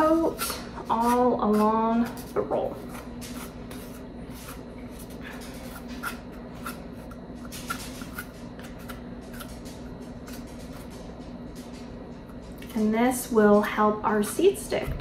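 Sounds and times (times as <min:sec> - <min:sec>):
knife scraping cardboard roll: 0:00.0 - 0:09.5.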